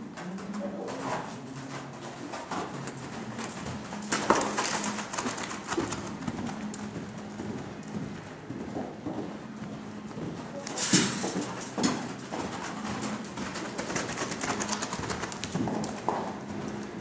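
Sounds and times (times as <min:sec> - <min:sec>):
horse hoofbeats on dirt: 0:00.0 - 0:17.0.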